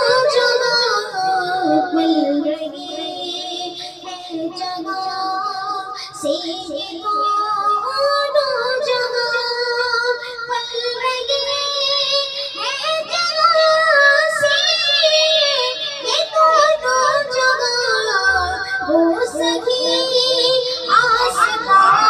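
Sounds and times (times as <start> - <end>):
boy singing into a microphone: 0.0 - 22.0.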